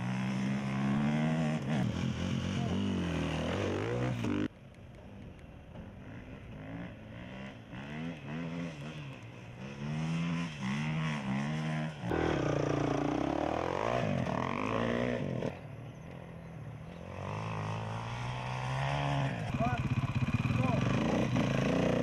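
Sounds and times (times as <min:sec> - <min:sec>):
motorcycle engines accelerating: 0:00.0 - 0:22.0.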